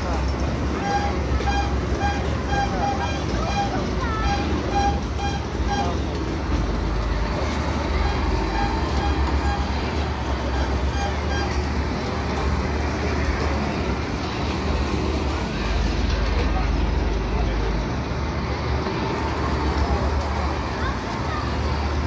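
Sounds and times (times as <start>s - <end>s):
carnival ride deep rumble: 0.0s - 22.0s.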